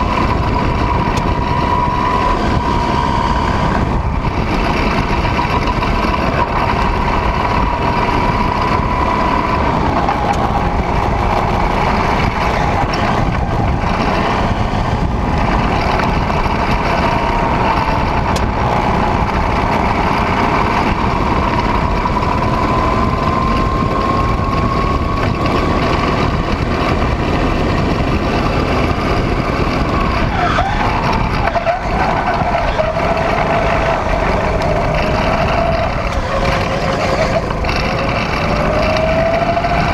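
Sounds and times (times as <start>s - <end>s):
go-kart engine running hard: 0.0s - 39.9s
wind on microphone: 0.0s - 39.9s.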